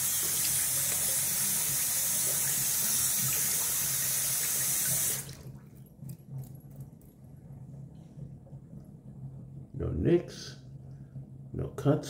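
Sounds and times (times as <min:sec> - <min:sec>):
tap water running into sink: 0:00.0 - 0:05.6.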